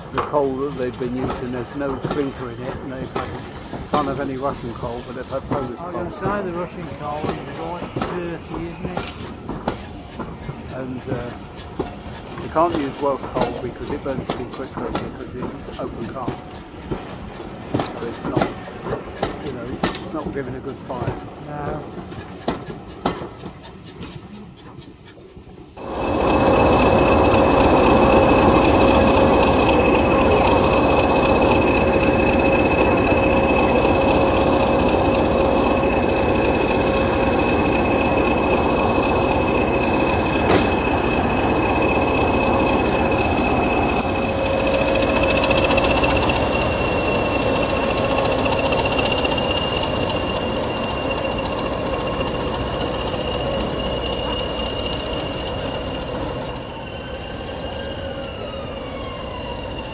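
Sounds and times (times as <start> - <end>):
mid-pitched hum: 25.8 - 55.2
locomotive diesel engine idling: 25.8 - 56.6
high turbocharger whistle: 25.8 - 59.9.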